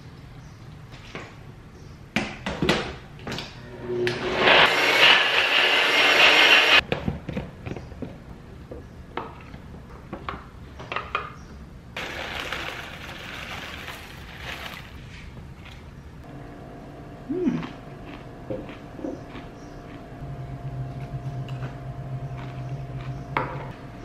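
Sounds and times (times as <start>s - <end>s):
blender running: 3.8s - 6.8s
granola rattling from plastic bag: 12.0s - 15.0s.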